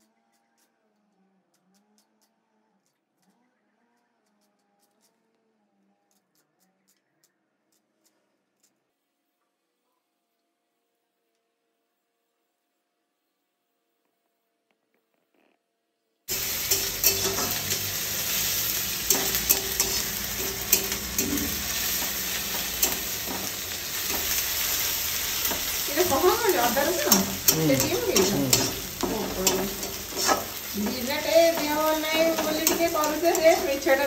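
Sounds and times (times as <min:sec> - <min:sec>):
spatula clicking and scraping: 0:16.3 - 0:34.0
vegetables sizzling in oil: 0:16.3 - 0:34.0.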